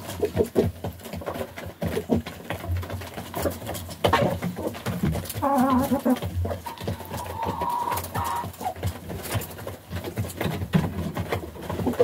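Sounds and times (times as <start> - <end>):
chickens pecking on wood: 0.0 - 12.0
hen call: 5.4 - 8.7.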